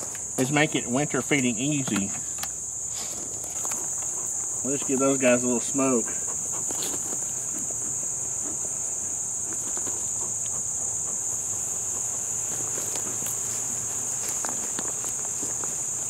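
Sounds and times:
crickets trilling: 0.0s - 16.0s
bellows smoker puffs: 2.2s - 14.7s.

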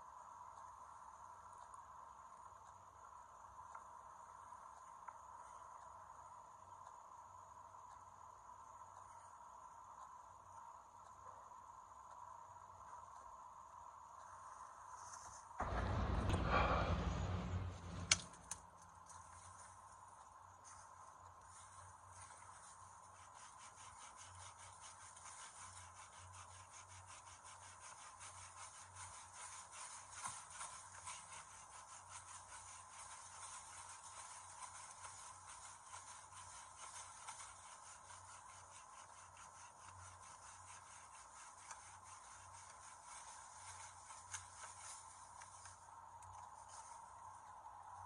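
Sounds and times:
knife scraping wooden branch: 23.2s - 45.8s.

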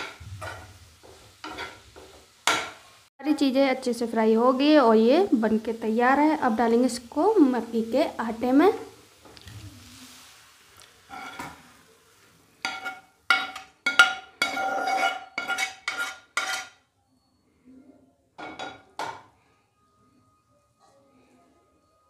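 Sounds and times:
metal spoon scraping a frying pan: 0.0s - 2.8s, 11.0s - 11.8s, 12.6s - 16.9s.

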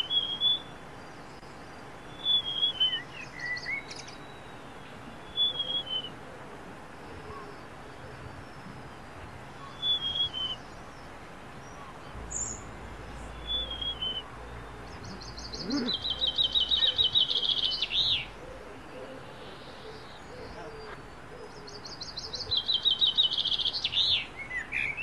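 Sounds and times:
songbird whistled phrases: 0.0s - 0.7s, 2.1s - 4.5s, 5.2s - 6.2s, 9.6s - 10.6s, 13.4s - 14.3s
songbird rapid trill: 2.0s - 6.1s, 9.6s - 18.4s, 19.3s - 25.0s.

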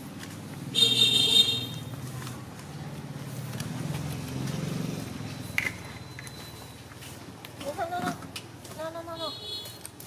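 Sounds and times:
vehicle engine humming: 0.0s - 7.8s.

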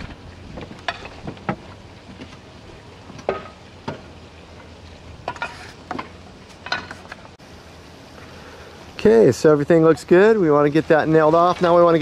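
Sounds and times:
clay roof tiles clinking: 0.0s - 2.2s, 3.1s - 4.0s, 5.2s - 7.4s.

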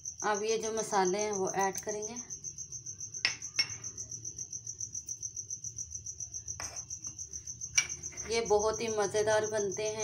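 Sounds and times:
cricket trilling: 0.0s - 10.0s
spices clattering into steel bowl: 6.6s - 8.5s.

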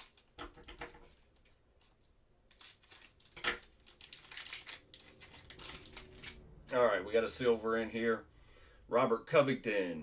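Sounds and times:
cards rustling and crinkling: 0.0s - 6.8s.

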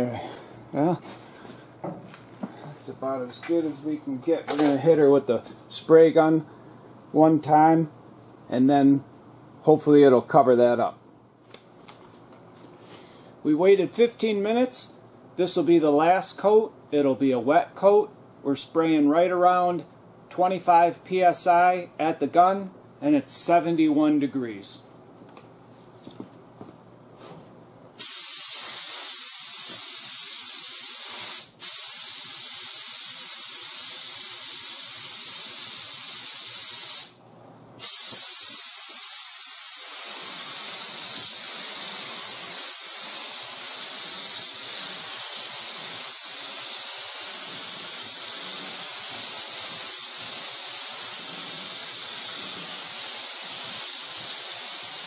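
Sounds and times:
spray gun hissing: 28.0s - 37.2s, 37.8s - 55.0s.

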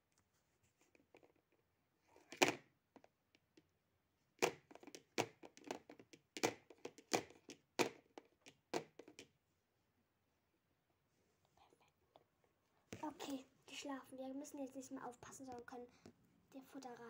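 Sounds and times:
plastic toys knocking on hard surface: 2.2s - 3.1s, 4.4s - 9.3s.

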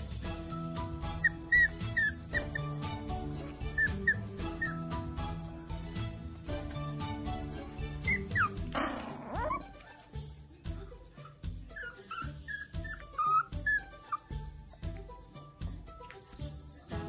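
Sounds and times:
background music with beat: 0.0s - 17.0s
puppy crying: 1.0s - 4.9s, 7.4s - 9.9s, 11.2s - 14.3s.

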